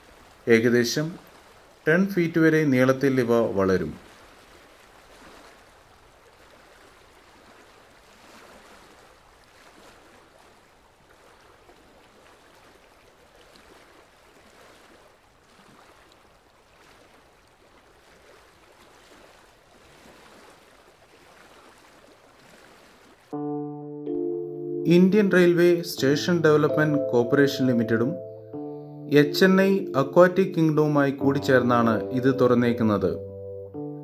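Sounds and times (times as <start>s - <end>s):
faint running water trickle: 0.0s - 3.0s, 4.0s - 23.2s.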